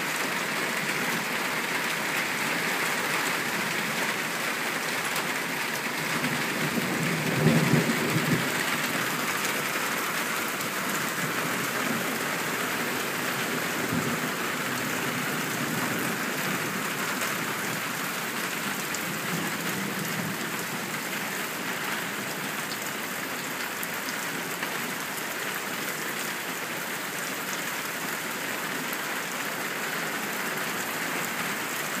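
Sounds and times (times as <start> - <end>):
heavy rain pouring: 0.0 - 32.0
rain on metal grill lid: 0.0 - 32.0.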